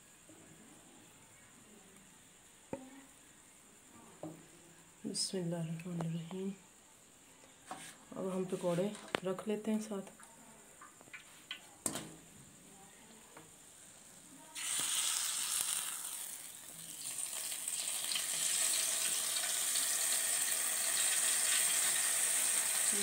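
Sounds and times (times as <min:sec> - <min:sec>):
sizzling hiss: 0:13.8 - 0:23.0.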